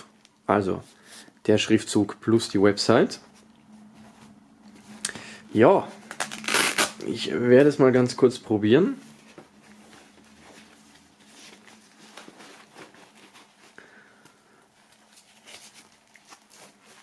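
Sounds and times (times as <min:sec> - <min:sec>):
boxing glove rustling: 0:08.9 - 0:17.0.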